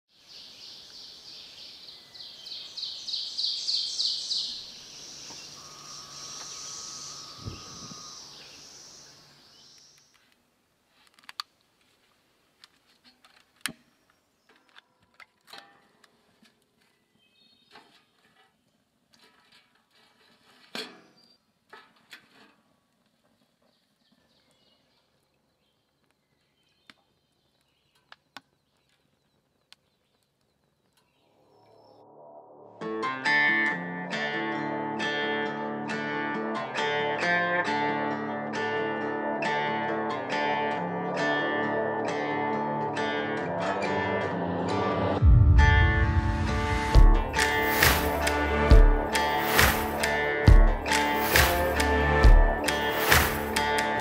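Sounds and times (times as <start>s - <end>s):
faint bird chirps: 0.3s - 10.2s
high-pitched pulsing bird trill: 5.4s - 9.3s.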